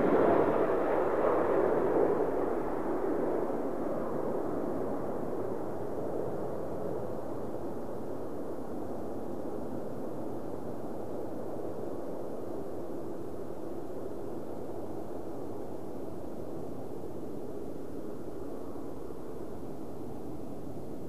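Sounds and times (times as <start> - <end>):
jet engine roar: 0.0 - 7.1.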